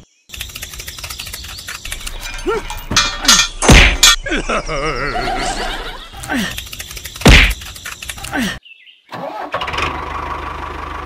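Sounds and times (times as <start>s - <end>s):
fast run of clicks: 0.3s - 2.3s, 6.1s - 8.4s
loud cartoon whack: 3.7s - 4.0s, 7.2s - 7.6s.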